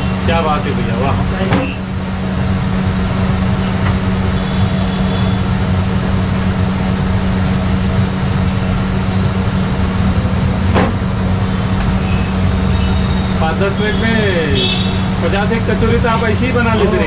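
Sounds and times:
machine hum: 0.0 - 13.4.

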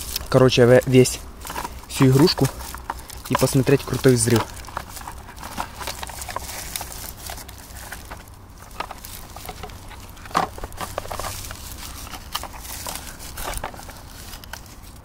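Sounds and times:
firecracker strip rustling and clicking: 0.0 - 15.0.

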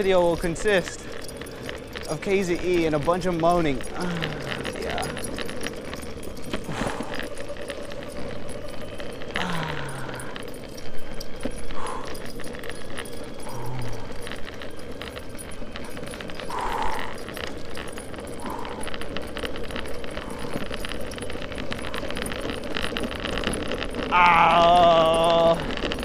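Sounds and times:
skateboard rolling over rough asphalt: 0.0 - 3.1, 3.7 - 9.5, 14.0 - 24.1
leash and harness clinking: 0.0 - 26.0
loud wavering moan: 3.5 - 5.7, 9.2 - 11.1, 13.4 - 14.6, 24.0 - 26.0.

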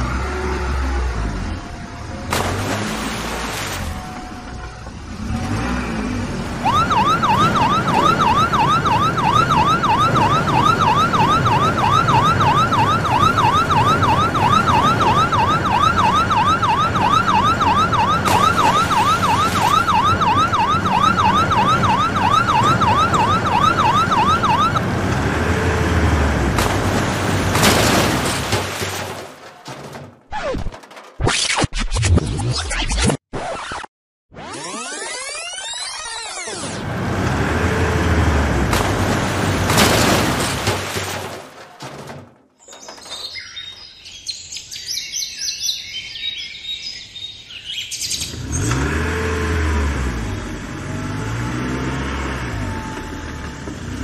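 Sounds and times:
toy siren yelping: 6.7 - 24.8.

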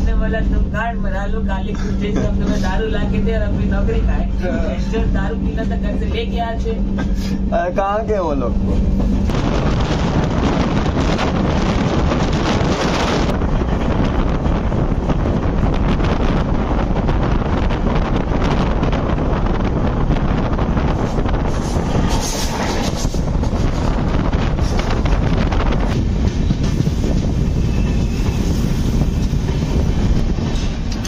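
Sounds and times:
train coaches rumbling on track: 0.0 - 31.0
wind buffeting microphone: 8.1 - 31.0.

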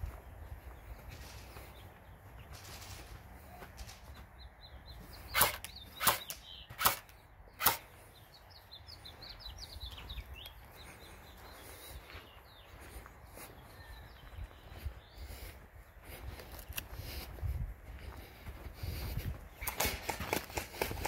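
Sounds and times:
airsoft gun cracks: 5.4 - 7.9.

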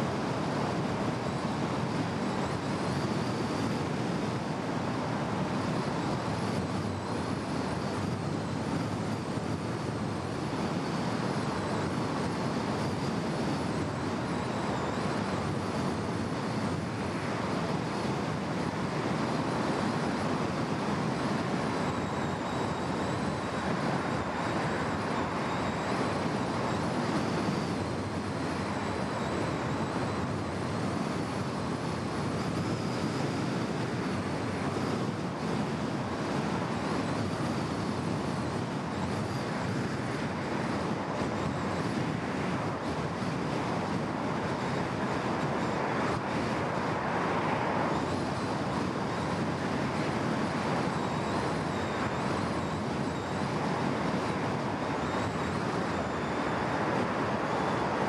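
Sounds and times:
traffic passing: 45.2 - 48.2.

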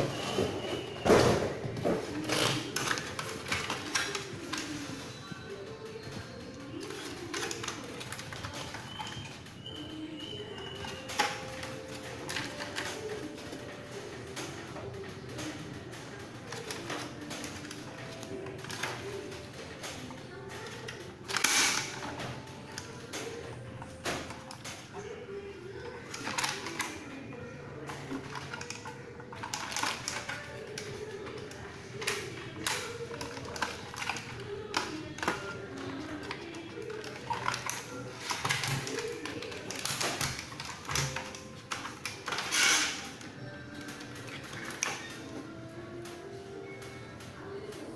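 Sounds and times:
plastic toy clicks and knocks: 14.3 - 25.0, 25.9 - 27.2, 27.8 - 45.3.

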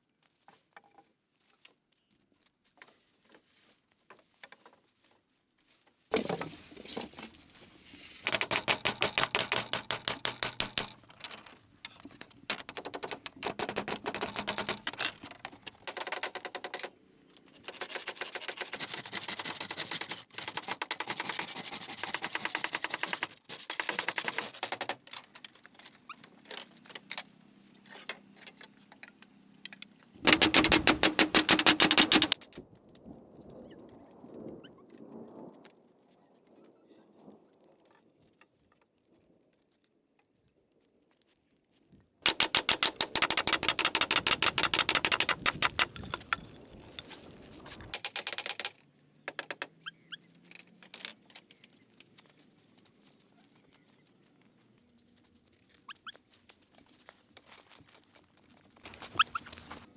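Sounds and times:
bamboo clicking and rasping: 6.1 - 32.6, 42.2 - 53.8, 54.9 - 59.9.

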